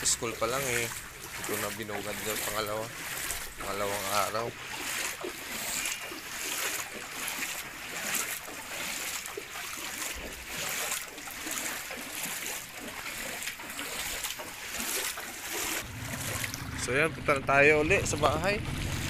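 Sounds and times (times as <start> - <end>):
footsteps wading through water: 0.0 - 17.2.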